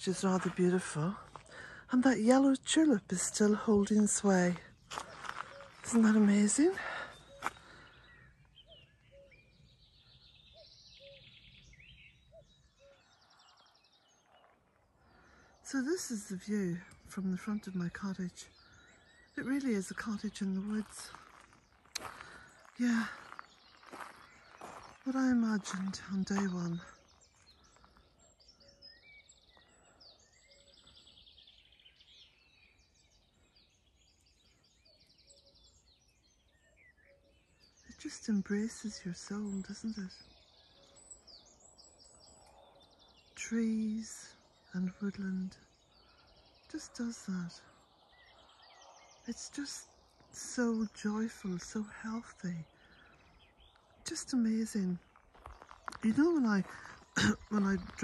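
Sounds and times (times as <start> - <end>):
songbirds chirping and trilling: 0.0 - 58.0
cuckoo calling in the distance: 4.9 - 14.5.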